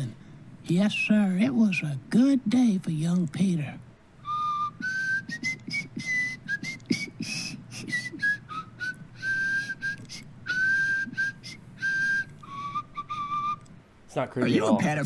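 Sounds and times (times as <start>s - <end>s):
old man whistling a tune: 4.2s - 13.7s.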